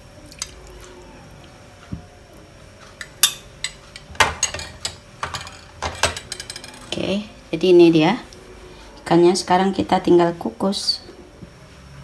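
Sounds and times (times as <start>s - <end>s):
metal spoon clinking on dishes: 3.0s - 6.9s.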